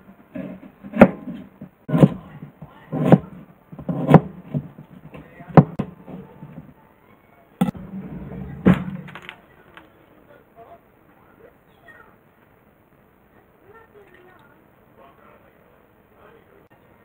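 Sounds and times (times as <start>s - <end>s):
utensils knocking on cutting board: 0.3s - 6.7s.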